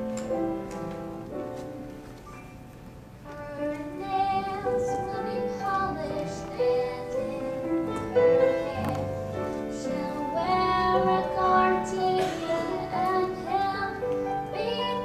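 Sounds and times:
piano accompaniment: 0.0 - 15.0
young woman singing: 3.3 - 15.0.

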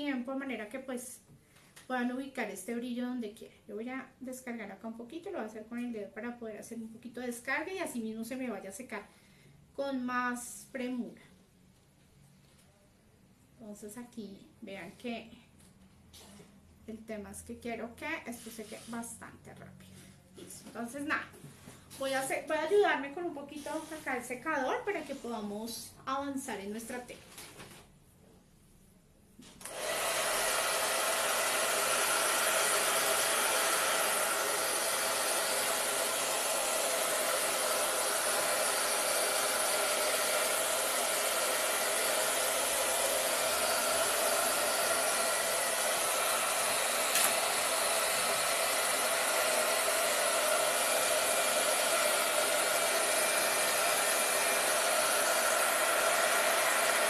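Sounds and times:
hair dryer blowing: 29.6 - 57.0.

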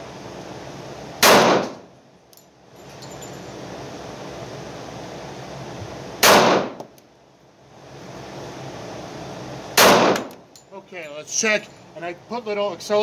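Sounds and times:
steady background hiss: 0.0 - 13.0
pistol shots with echo: 1.2 - 1.8, 6.2 - 6.8, 9.8 - 10.4.

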